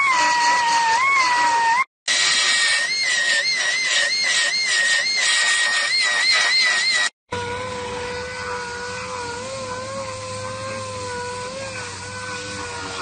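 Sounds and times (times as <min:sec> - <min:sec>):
belt sander whining: 0:00.0 - 0:13.0.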